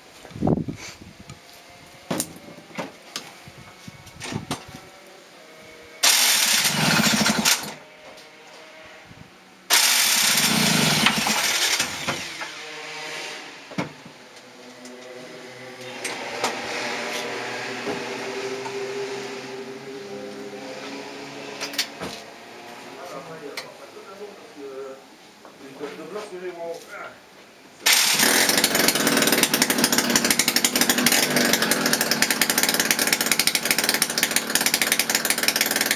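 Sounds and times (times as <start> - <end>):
scooter engine starting: 6.0 - 7.8, 9.7 - 12.4, 27.8 - 35.9
two-stroke engine idling: 6.0 - 7.8, 9.7 - 12.0, 27.8 - 35.9.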